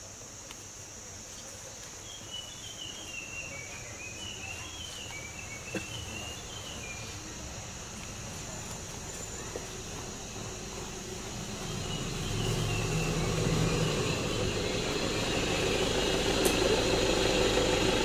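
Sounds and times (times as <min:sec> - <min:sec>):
insects droning: 0:00.0 - 0:18.0
bird chirping: 0:02.0 - 0:07.3, 0:11.5 - 0:16.8.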